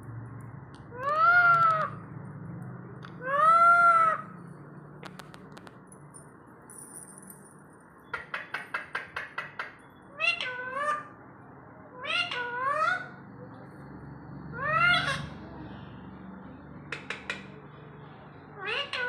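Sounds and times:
parakeet meow-like calls: 0:00.9 - 0:02.0, 0:03.2 - 0:04.3, 0:10.1 - 0:11.2, 0:12.0 - 0:13.1, 0:14.5 - 0:15.3, 0:18.6 - 0:19.0.

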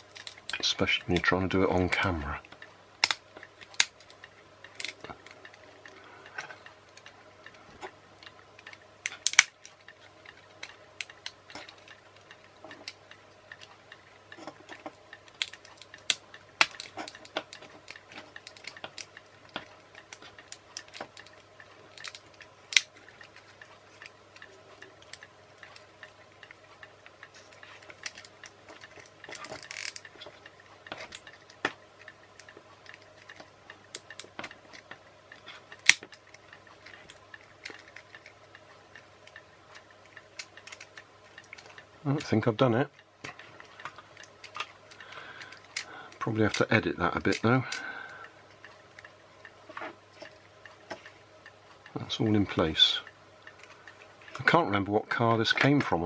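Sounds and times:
plastic parts clicking: 0:00.0 - 0:01.3, 0:02.5 - 0:42.4.

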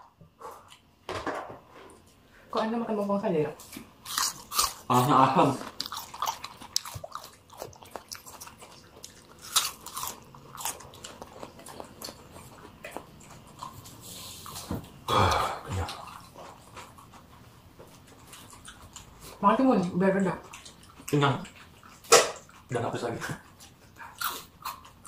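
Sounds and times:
crunching and chewing vegetables: 0:03.6 - 0:25.0.

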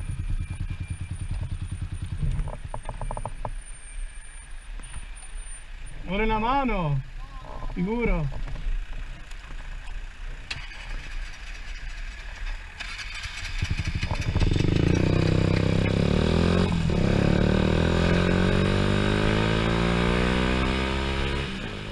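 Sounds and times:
motorcycle engine accelerating: 0:00.0 - 0:03.6, 0:08.4 - 0:21.9.

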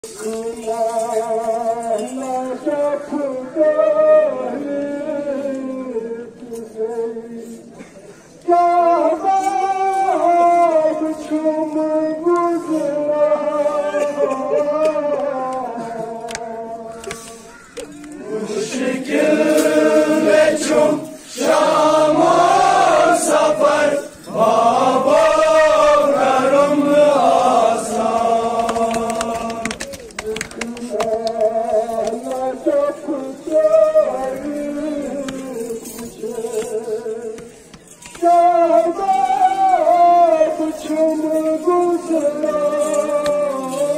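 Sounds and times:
male voices chanting: 0:08.4 - 0:17.4, 0:18.0 - 0:43.9
person singing long held notes: 0:08.4 - 0:43.9.

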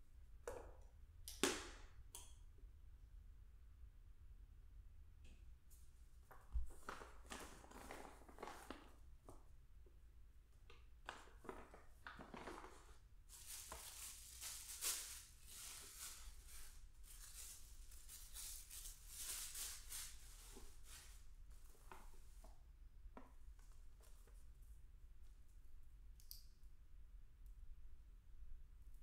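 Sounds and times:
tissue paper rustling: 0:06.6 - 0:09.0, 0:11.1 - 0:22.4.

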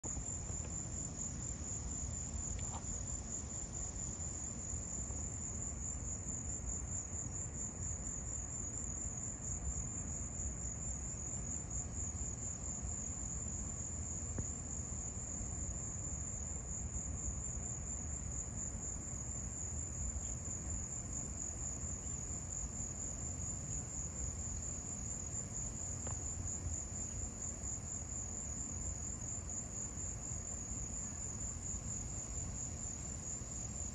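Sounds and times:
insect chorus trilling: 0:00.0 - 0:33.9.

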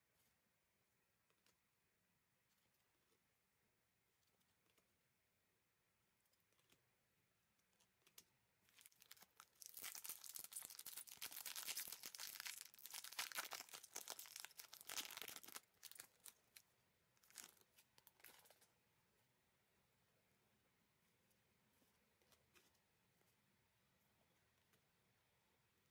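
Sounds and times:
foil wrapper tearing and crinkling: 0:08.8 - 0:16.6, 0:17.2 - 0:18.4.

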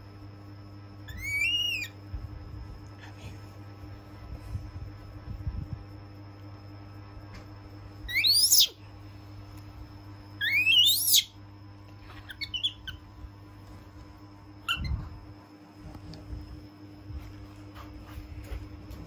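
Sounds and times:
baby monkey chirping: 0:01.1 - 0:02.0, 0:08.1 - 0:08.8, 0:10.4 - 0:11.4, 0:12.1 - 0:13.1, 0:14.6 - 0:15.0
baby monkey squealing: 0:01.1 - 0:02.0, 0:08.1 - 0:08.8, 0:10.4 - 0:11.4, 0:12.1 - 0:13.0, 0:14.6 - 0:15.0.

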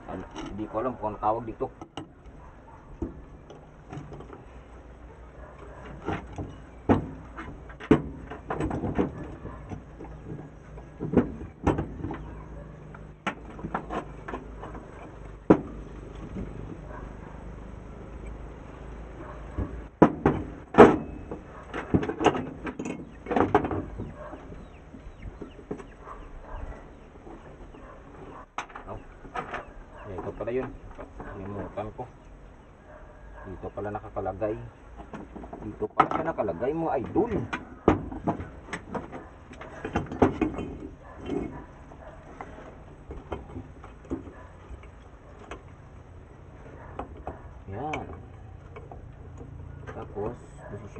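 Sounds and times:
metal parts clattering on wood: 0:00.0 - 0:00.8, 0:01.4 - 0:04.7, 0:05.5 - 0:17.0, 0:19.6 - 0:26.5, 0:27.2 - 0:31.7, 0:35.0 - 0:45.9.

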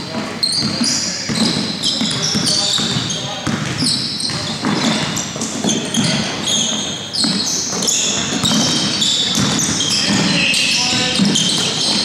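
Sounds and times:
sneakers squeaking: 0:00.0 - 0:12.0
basketball bouncing on floor: 0:00.1 - 0:12.0.

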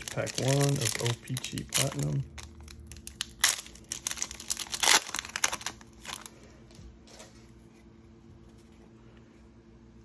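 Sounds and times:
foil pack tearing: 0:00.0 - 0:06.3
foil wrapper crinkling: 0:00.0 - 0:06.5.

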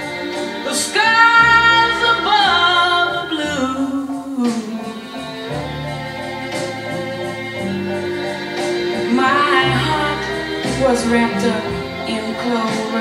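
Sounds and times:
woman singing ballad: 0:00.0 - 0:05.9, 0:09.0 - 0:13.0
strings and guitar: 0:00.0 - 0:13.0.

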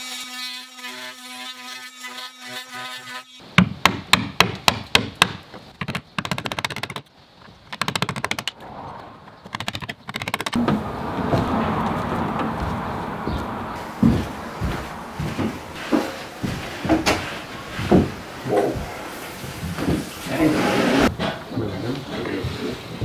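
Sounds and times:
hammer striking wood chisel: 0:03.6 - 0:07.0.

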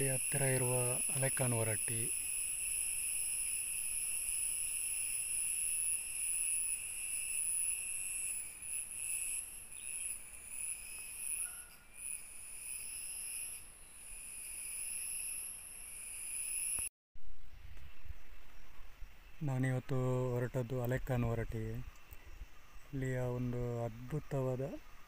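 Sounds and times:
insects shrilling: 0:00.0 - 0:16.9.

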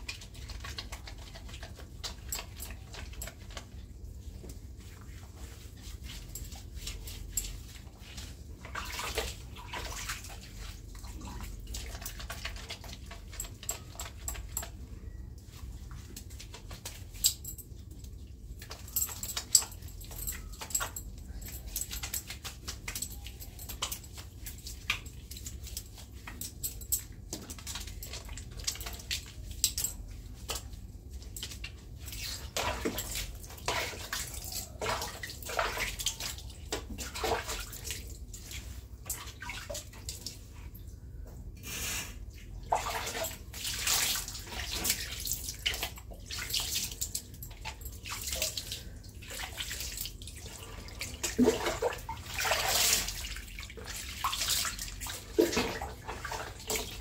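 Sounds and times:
water splashing in bath: 0:05.4 - 0:14.7, 0:21.7 - 0:40.5, 0:42.6 - 0:57.0.

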